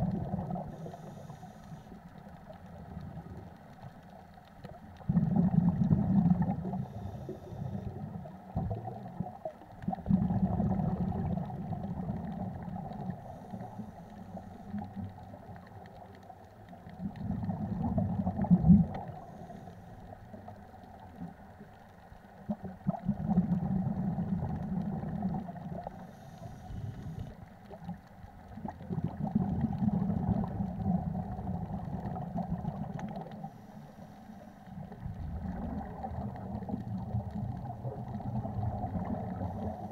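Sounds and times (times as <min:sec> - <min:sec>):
bubbly underwater exhalations: 0:00.0 - 0:01.2, 0:05.0 - 0:13.4, 0:17.0 - 0:19.3, 0:22.4 - 0:26.0, 0:27.0 - 0:33.5, 0:34.7 - 0:39.9
faint steady hum: 0:00.0 - 0:39.9.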